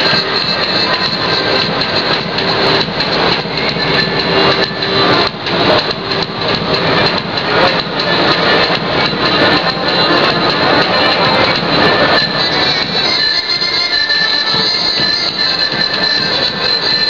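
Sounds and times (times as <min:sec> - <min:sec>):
loud folk dance music: 0:00.0 - 0:17.0.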